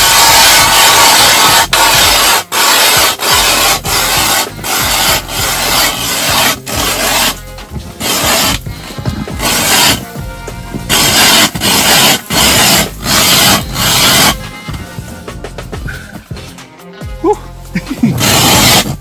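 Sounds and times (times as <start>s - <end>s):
ice auger rasping scrape: 0.0s - 7.4s, 8.0s - 10.2s, 10.8s - 14.4s, 18.1s - 19.0s.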